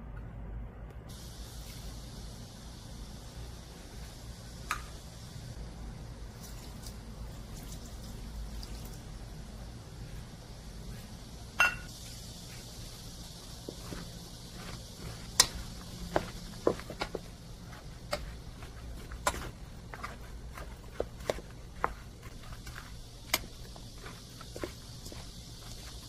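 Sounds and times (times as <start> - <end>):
cup clinking against bowl: 11.6 - 11.9.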